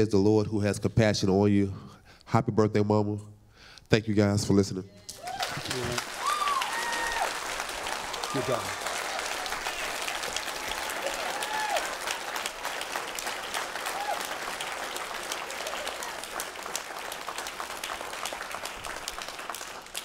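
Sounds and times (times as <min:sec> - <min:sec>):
crowd applauding: 0:05.1 - 0:20.0.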